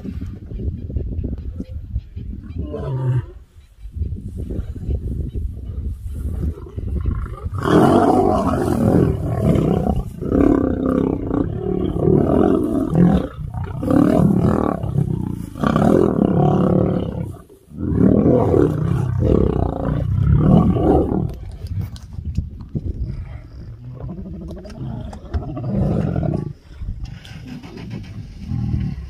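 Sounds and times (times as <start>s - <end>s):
lions roaring and snarling: 2.5s - 3.5s, 6.0s - 22.2s, 23.2s - 29.0s.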